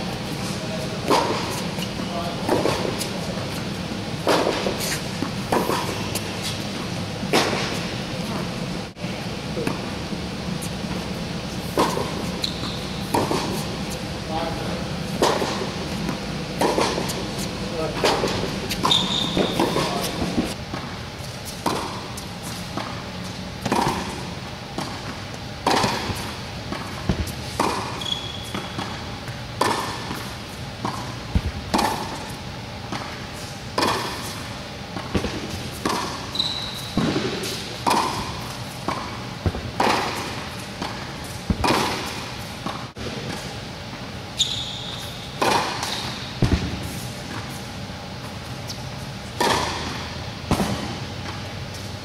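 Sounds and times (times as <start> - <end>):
shoes squeaking on court: 0.1 - 8.4, 10.6 - 14.1, 15.2 - 24.0, 24.8 - 43.6, 44.3 - 50.2
tennis ball bouncing: 1.0 - 1.6, 2.4 - 3.1, 4.2 - 6.6, 10.8 - 14.0, 15.2 - 17.4, 18.0 - 21.0, 21.6 - 22.2, 23.6 - 34.3, 34.9 - 44.0, 45.4 - 47.6, 49.4 - 51.4
racket striking tennis ball: 1.0 - 1.8, 2.4 - 3.5, 4.2 - 6.6, 7.3 - 7.9, 11.6 - 14.0, 15.2 - 21.0, 21.6 - 23.0, 23.6 - 29.0, 29.6 - 43.6, 45.4 - 47.7, 49.3 - 51.4.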